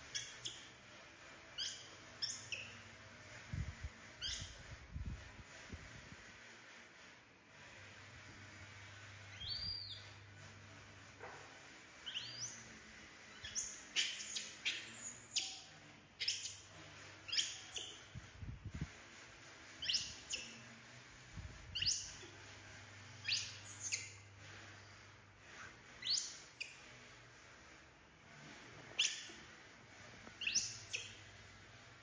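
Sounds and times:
baby monkey squeaky cries: 19.8s - 20.5s.

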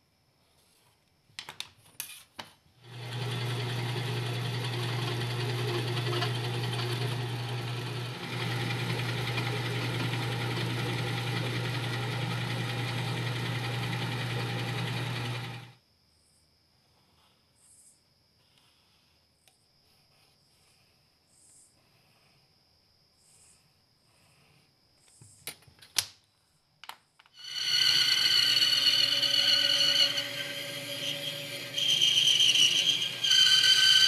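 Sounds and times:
electric drill running: 2.8s - 15.7s, 27.4s - 34.0s.

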